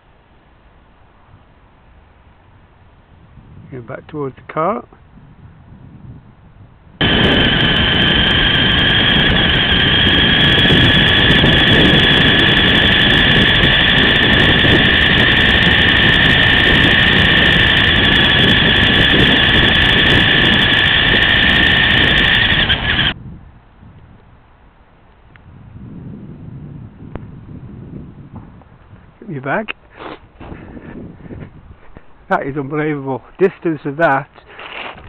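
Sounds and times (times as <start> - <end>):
small electric motor whining: 7.0 - 23.2
tyres rumbling on tarmac: 7.0 - 23.2.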